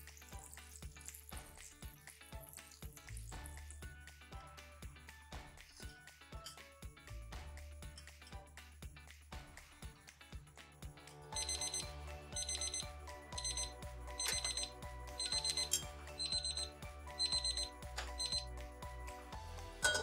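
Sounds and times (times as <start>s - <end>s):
thermometer alarm beeping: 11.4s - 18.5s.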